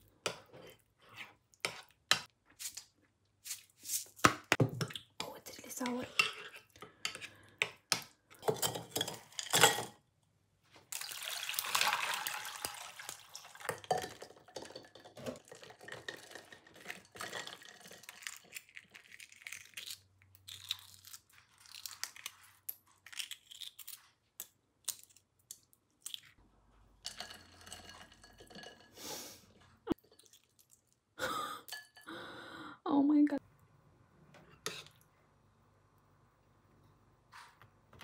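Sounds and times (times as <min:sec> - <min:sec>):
soft splashes and drips: 0:10.9 - 0:13.9.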